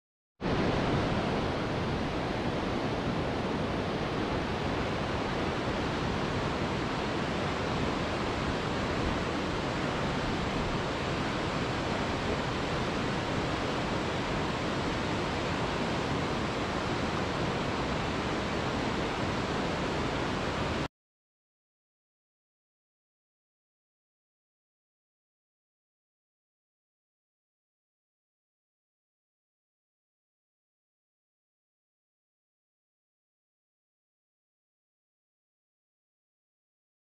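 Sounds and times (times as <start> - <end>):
waterfall roaring: 0.5 - 20.9.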